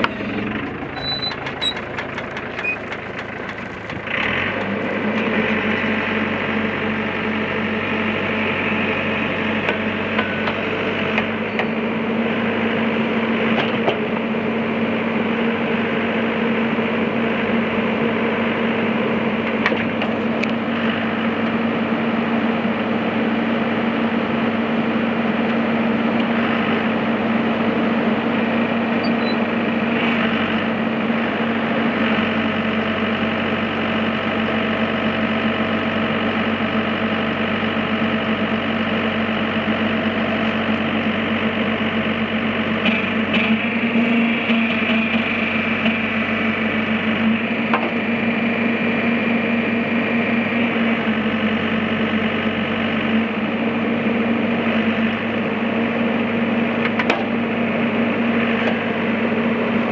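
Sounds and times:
hydraulic boom working: 0:00.0 - 0:06.1
diesel engine running: 0:00.0 - 0:59.9.

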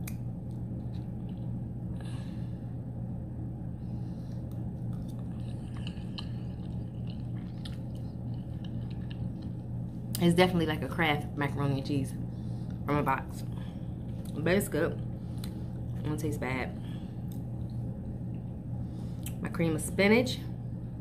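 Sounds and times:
person chewing: 0:00.0 - 0:01.6, 0:04.3 - 0:10.2
low hum: 0:00.0 - 0:21.0.

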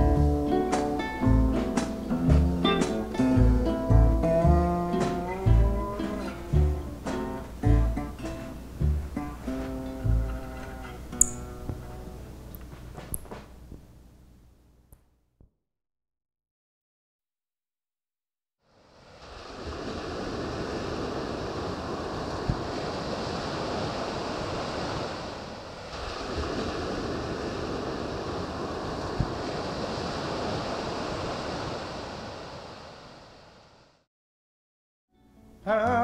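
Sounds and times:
surf breaking on pebble beach: 0:19.0 - 0:33.2.

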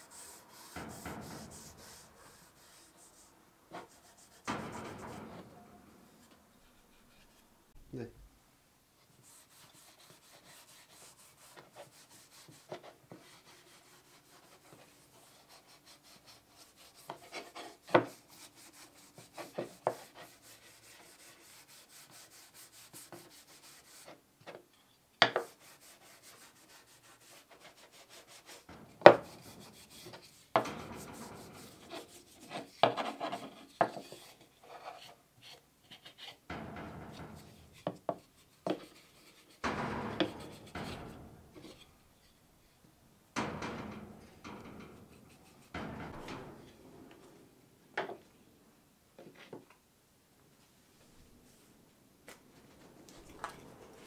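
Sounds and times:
sandpaper rasping on wood: 0:00.0 - 0:03.1, 0:09.2 - 0:24.1, 0:25.4 - 0:30.5
sharp knocks: 0:00.1 - 0:07.9, 0:27.1 - 0:34.0, 0:36.5 - 0:42.7, 0:43.3 - 0:48.3.

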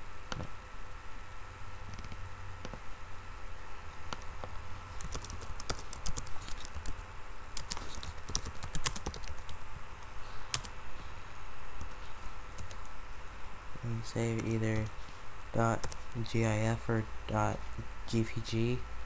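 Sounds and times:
keyboard typing: 0:01.9 - 0:02.8, 0:04.1 - 0:07.0, 0:07.6 - 0:09.6, 0:10.5 - 0:10.7, 0:12.6 - 0:12.9, 0:14.2 - 0:14.9, 0:15.6 - 0:16.3.

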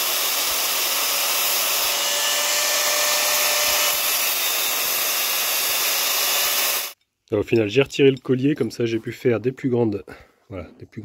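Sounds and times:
power tool cutting steel tube: 0:00.0 - 0:07.0.

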